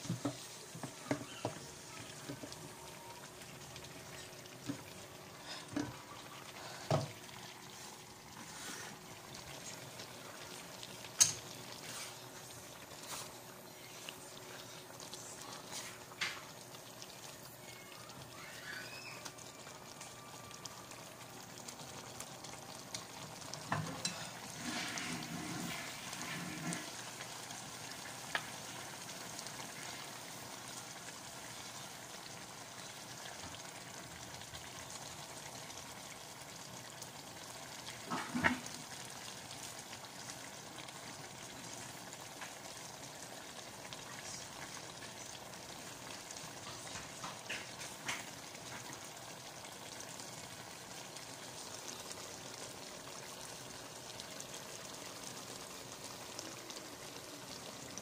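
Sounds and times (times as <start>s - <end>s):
meat sizzling and bubbling: 0.0s - 58.0s.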